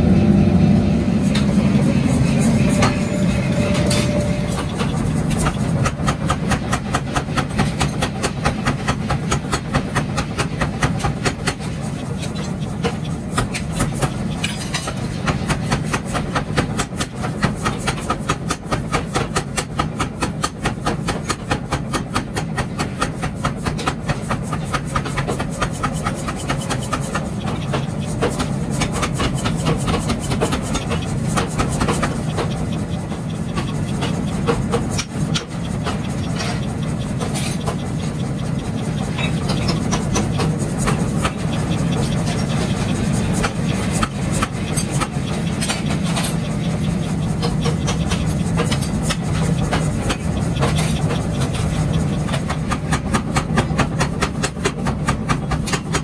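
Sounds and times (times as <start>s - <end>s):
low machine hum: 0.0s - 7.8s
power hammer pounding steel: 0.0s - 56.0s.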